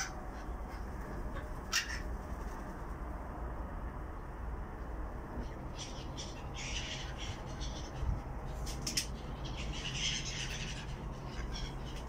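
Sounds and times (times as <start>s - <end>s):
gulls squawking: 0.0s - 2.1s, 9.1s - 12.0s
steady low hum: 0.0s - 12.0s.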